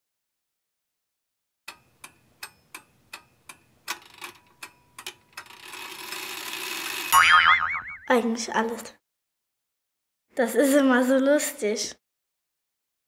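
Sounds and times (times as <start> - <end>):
clock ticking: 1.7 - 5.5.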